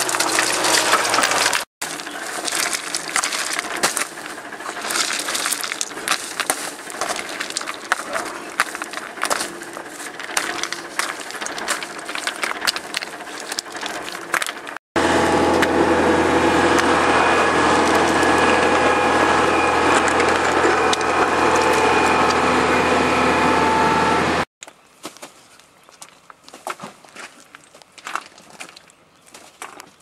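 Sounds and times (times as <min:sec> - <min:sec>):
stones clacking together: 0:00.0 - 0:14.8, 0:24.6 - 0:30.0
engine drone with low hum: 0:00.0 - 0:24.5.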